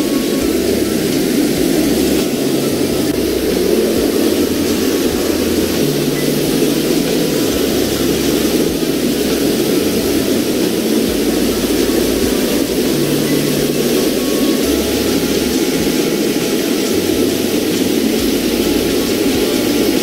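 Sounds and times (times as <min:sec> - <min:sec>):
water cascading over rocks: 0:00.0 - 0:20.0.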